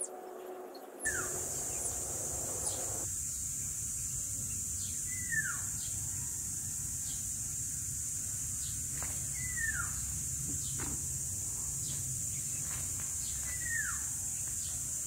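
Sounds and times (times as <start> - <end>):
birds calling: 0.0 - 3.1
high-pitched insect drone: 0.0 - 5.9
low steady rumble: 1.1 - 3.0.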